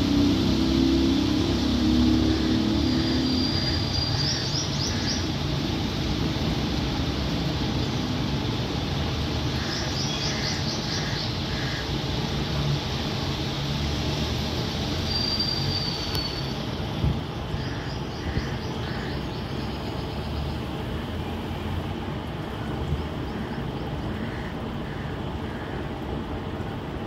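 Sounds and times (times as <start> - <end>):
low rumble and hiss: 0.0 - 27.0
birds chirping: 1.0 - 5.7, 9.4 - 12.3, 15.1 - 26.0
high bird whistle: 15.0 - 16.6.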